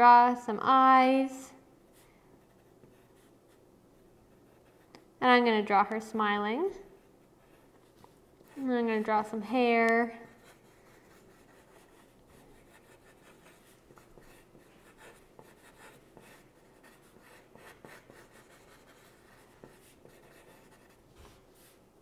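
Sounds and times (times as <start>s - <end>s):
pencil scratching on paper: 1.9s - 3.6s, 4.2s - 4.9s, 6.8s - 21.8s.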